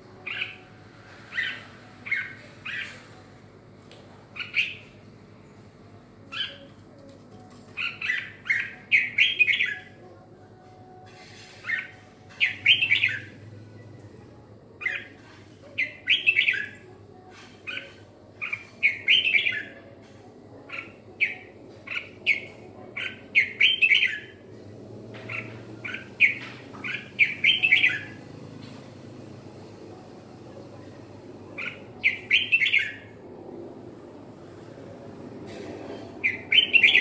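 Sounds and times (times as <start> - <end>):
bulbul singing: 7.7 - 10.2, 10.9 - 13.8, 14.8 - 20.0, 25.2 - 28.4, 31.5 - 33.2, 36.2 - 37.0.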